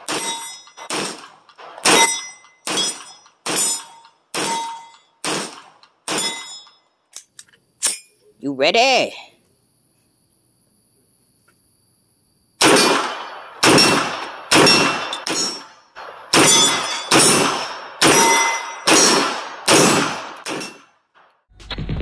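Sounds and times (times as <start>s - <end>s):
steel plate target clanging: 0.0s - 5.2s, 6.1s - 6.9s, 14.6s - 15.8s, 16.4s - 19.2s, 20.5s - 20.9s
carbine gunshots: 0.0s - 6.6s, 12.6s - 21.3s.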